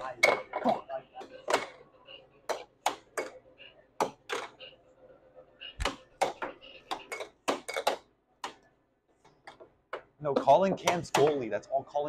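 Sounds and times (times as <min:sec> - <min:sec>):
air hockey puck clacks: 0:05.8 - 0:08.7, 0:09.3 - 0:11.4.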